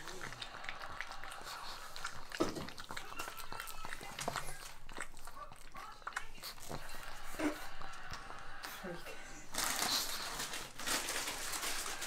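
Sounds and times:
dog licking with short clicks: 0.0s - 7.0s.

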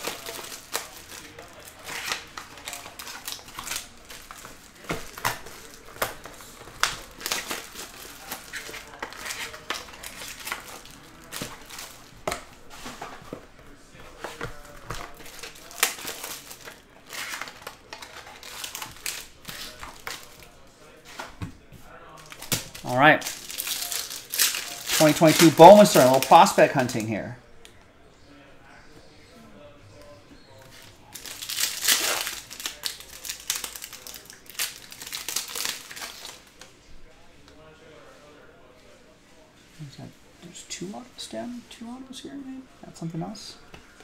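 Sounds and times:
foil wrappers crinkling and tearing: 0.0s - 20.6s, 22.1s - 27.3s, 30.8s - 36.7s.

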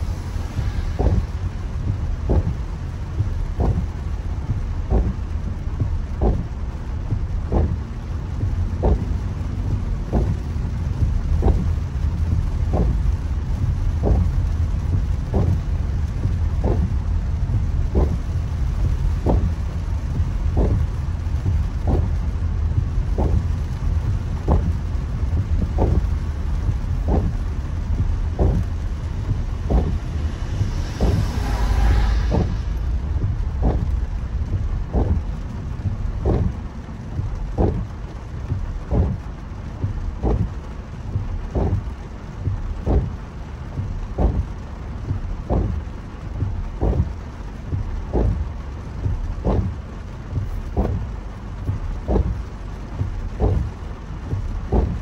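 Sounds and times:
water spray rushing hiss: 0.0s - 5.2s, 25.7s - 39.3s
car driving on wet road: 0.0s - 55.0s
heavy rain on a car: 0.0s - 55.0s
windscreen wipers knocking: 0.0s - 55.0s.

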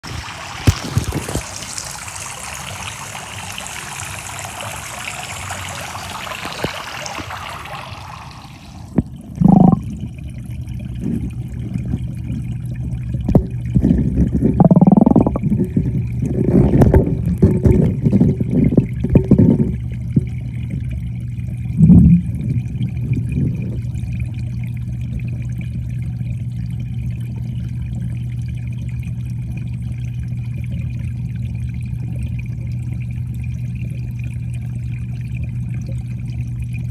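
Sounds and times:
water pattering onto pond: 0.0s - 8.4s, 9.0s - 36.9s
bubbling noises: 0.0s - 36.9s
underwater low hum: 0.8s - 36.9s
dull underwater knocks: 9.0s - 9.8s, 13.2s - 20.3s.

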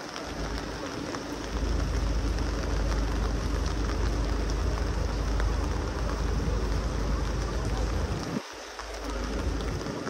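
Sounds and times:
rain falling: 0.0s - 10.0s
low rumble: 0.3s - 8.4s.

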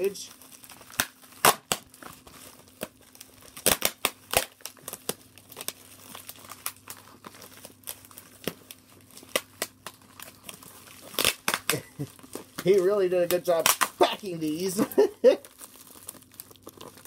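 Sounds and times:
packing material crinkling and tearing: 0.0s - 17.0s.

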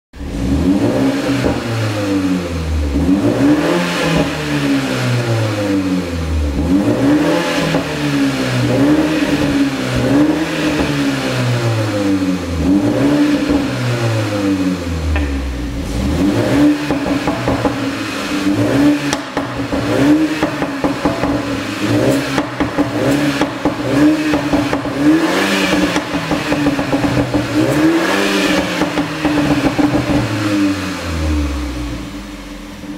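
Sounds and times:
car engine revving: 0.2s - 32.9s
exhaust pops and crackles: 19.1s - 21.6s.

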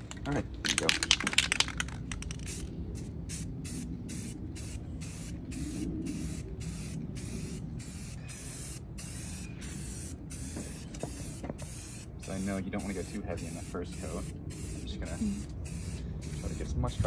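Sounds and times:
spray paint can bursts: 0.6s - 2.7s, 3.3s - 16.7s.

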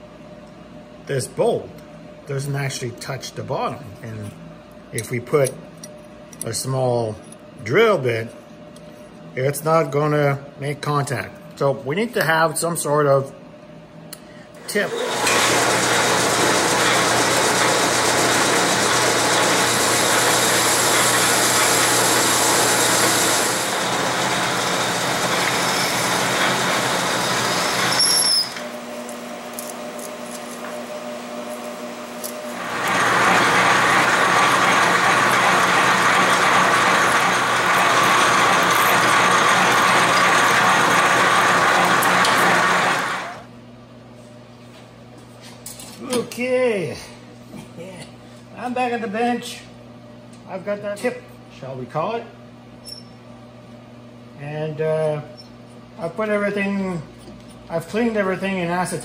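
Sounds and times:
metal lathe cutting: 14.7s - 43.4s
brief squeal: 27.9s - 28.6s, 52.8s - 53.2s.

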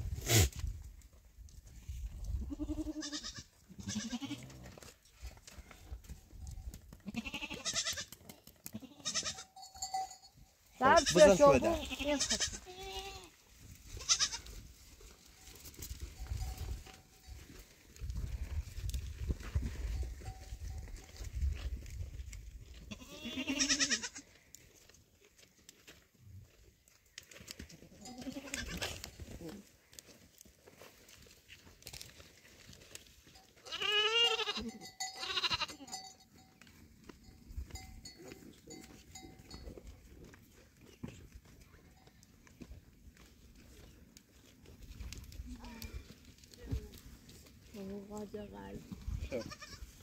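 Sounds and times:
goat bleating: 2.4s - 4.6s, 7.0s - 9.9s, 10.8s - 14.5s, 22.9s - 24.3s, 27.9s - 29.1s, 33.6s - 36.1s, 49.2s - 50.0s
goats jostling in a pen: 13.5s - 22.9s, 24.4s - 33.6s, 35.8s - 48.0s.

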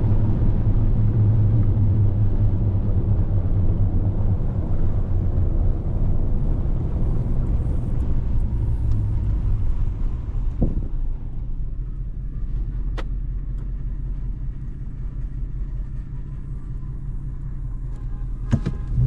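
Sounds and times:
truck engine and tyres rumbling: 0.0s - 19.0s.

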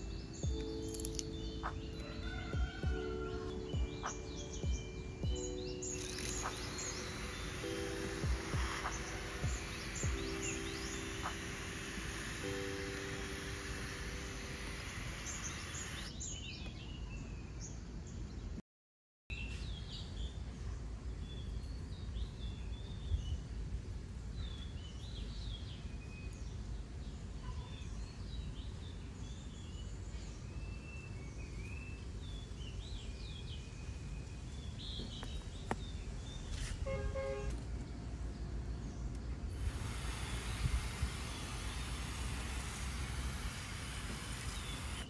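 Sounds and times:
small birds chirping: 0.0s - 17.8s, 19.3s - 45.0s
low outdoor rumble: 34.3s - 45.0s.

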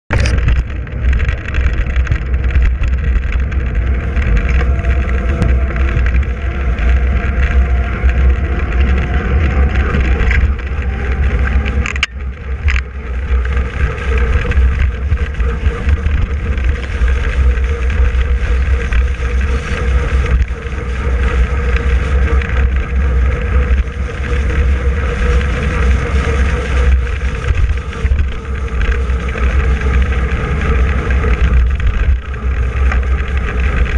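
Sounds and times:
wind rushing over microphone: 0.0s - 33.9s.

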